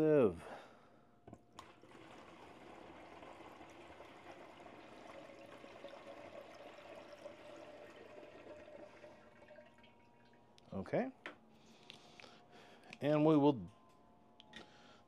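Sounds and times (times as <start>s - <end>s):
water pouring through sieve: 1.6s - 10.3s.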